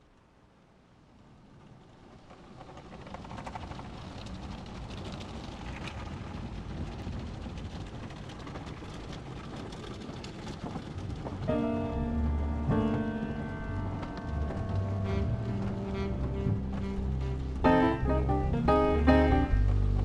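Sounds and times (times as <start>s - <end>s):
clatter: 1.5s - 17.0s.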